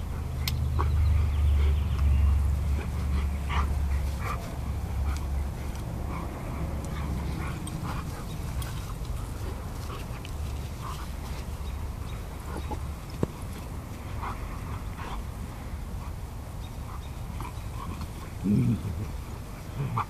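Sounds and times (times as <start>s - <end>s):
dogs grunting playfully: 0.0s - 20.0s
steady low rumble: 0.0s - 20.0s.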